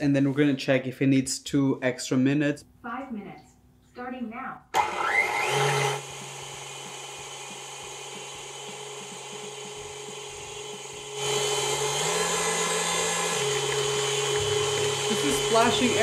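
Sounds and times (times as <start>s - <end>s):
stand mixer whisking: 4.8s - 16.0s.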